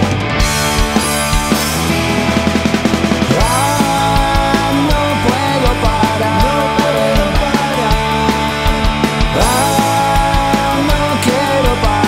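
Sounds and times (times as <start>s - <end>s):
drum kit: 0.0s - 12.0s
electric bass: 0.0s - 12.0s
electric guitar: 0.0s - 12.0s
person singing: 3.3s - 12.0s.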